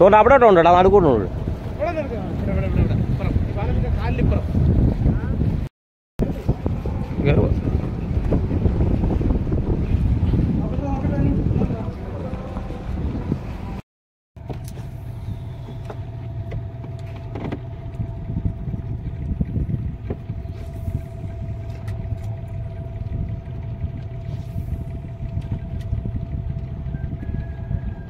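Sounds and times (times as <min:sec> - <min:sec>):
outboard motor running: 0:00.0 - 0:05.6, 0:06.2 - 0:13.8, 0:14.4 - 0:28.0.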